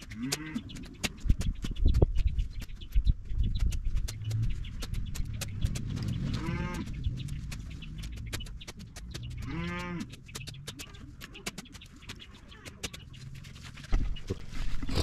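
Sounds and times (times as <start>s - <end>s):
farm animal calling: 0.0s - 1.0s, 6.0s - 7.2s, 9.1s - 13.4s.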